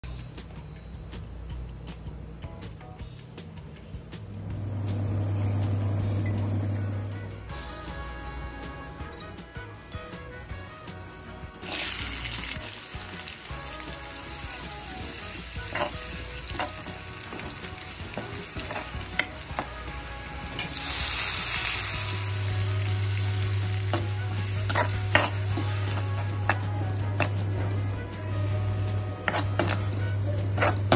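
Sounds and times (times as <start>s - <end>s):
food sizzling in hot oil: 11.6s - 26.7s
metal ladle scraping pan: 24.5s - 26.6s, 29.2s - 30.0s.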